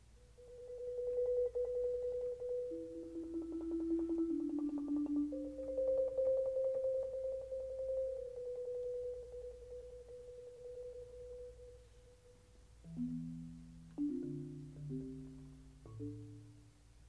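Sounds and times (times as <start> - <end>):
marimba tremolo roll: 0.5 - 10.0.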